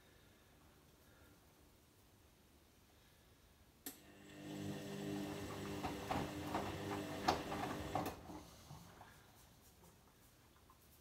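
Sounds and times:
washing machine motor humming: 0:03.9 - 0:08.3
laundry sloshing and thudding: 0:05.2 - 0:08.3.

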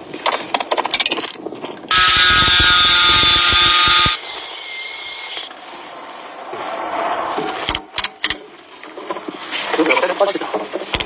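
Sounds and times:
angle grinder whining: 0:01.9 - 0:05.5.

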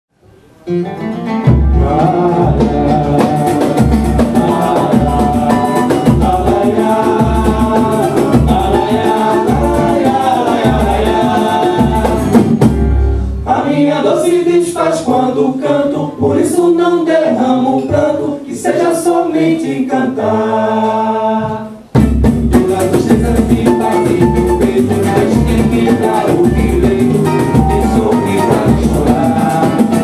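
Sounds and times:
acoustic guitars: 0:00.2 - 0:30.0
percussion: 0:01.2 - 0:15.4, 0:20.4 - 0:30.0
deep drum beating: 0:01.4 - 0:13.2, 0:21.5 - 0:30.0.

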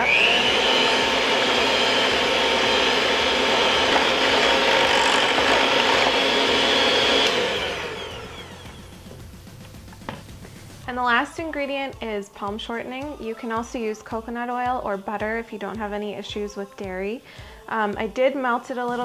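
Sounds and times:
electric hand mixer whirring: 0:00.0 - 0:10.8.

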